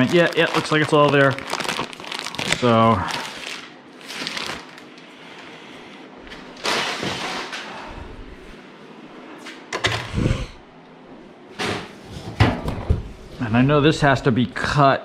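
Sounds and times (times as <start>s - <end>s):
plastic bag rustling: 0.0s - 5.1s.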